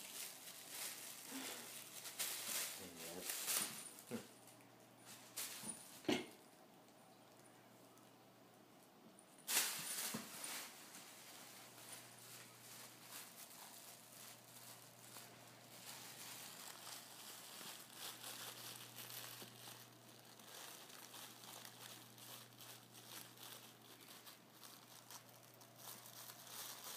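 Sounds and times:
plastic bag crinkling: 0:00.0 - 0:06.1, 0:09.3 - 0:26.9
faint low hum: 0:00.0 - 0:26.9.

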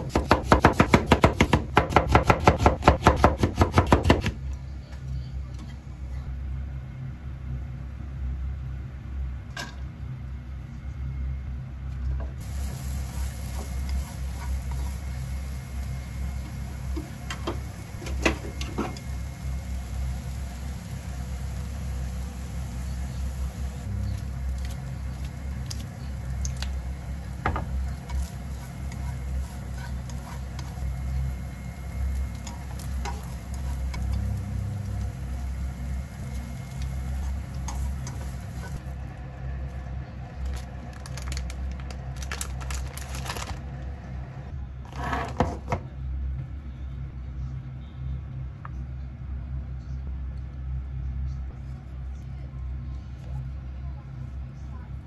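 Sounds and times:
carrots sizzling in a frying pan: 0:12.4 - 0:38.9.

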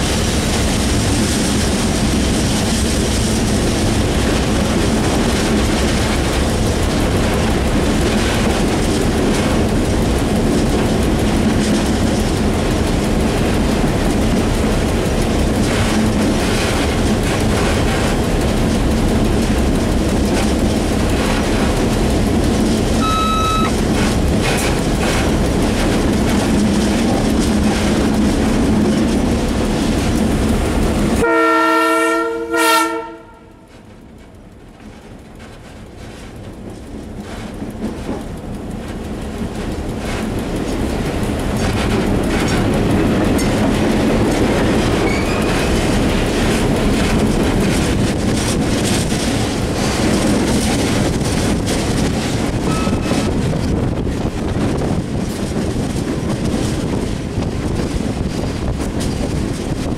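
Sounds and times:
diesel locomotive running: 0:00.0 - 0:59.9
train wheels clicking over rails: 0:00.0 - 0:59.9
locomotive horn chord: 0:23.0 - 0:23.7, 0:31.2 - 0:33.6
short beep: 0:23.0 - 0:23.7.

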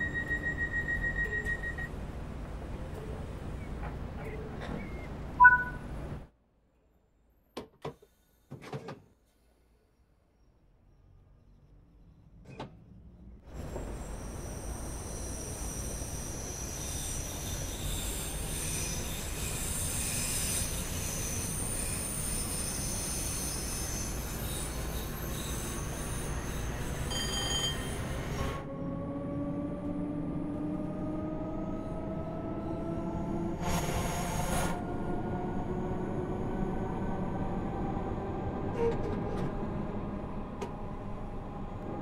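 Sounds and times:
train wheels squealing: 0:00.0 - 0:01.9, 0:13.6 - 0:28.9
rising motor whine: 0:28.6 - 0:33.6.

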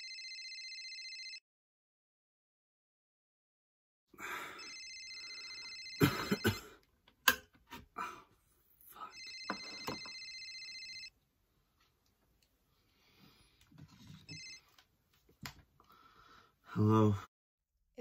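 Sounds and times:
telephone ringing with electronic trill: 0:00.0 - 0:01.4, 0:04.6 - 0:06.6, 0:09.1 - 0:11.1, 0:14.2 - 0:14.7.

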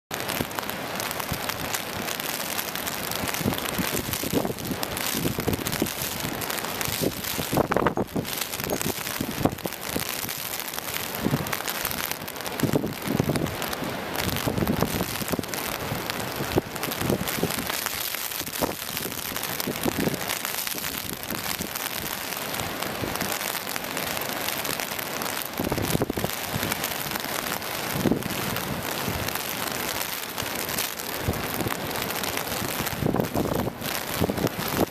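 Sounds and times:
heavy rain: 0:00.1 - 0:34.9
wind buffeting microphone: 0:03.3 - 0:22.1, 0:25.6 - 0:27.0, 0:27.8 - 0:29.4, 0:31.2 - 0:34.9.

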